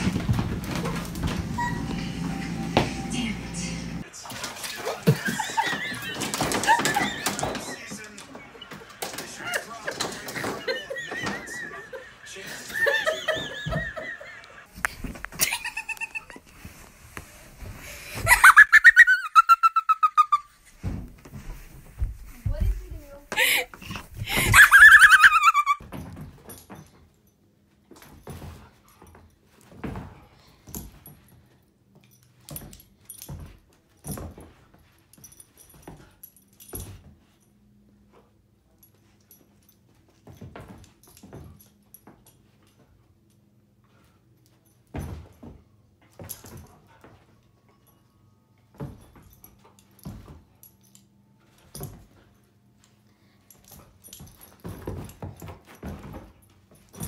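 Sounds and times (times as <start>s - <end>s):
dog paws thumping and scrabbling: 0.0s - 3.0s, 5.1s - 11.9s, 20.6s - 37.4s, 38.8s - 42.9s, 48.7s - 52.4s, 53.5s - 57.0s
dogs scuffling paws: 0.0s - 3.1s
dog collar tags jingling: 47.6s - 55.7s.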